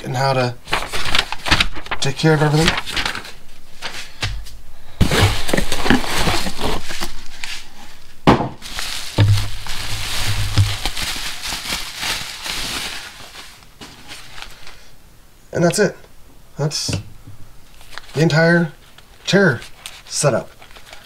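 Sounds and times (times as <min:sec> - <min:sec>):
plastic packaging crinkling: 0:00.6 - 0:03.9, 0:05.0 - 0:14.9, 0:17.7 - 0:21.0.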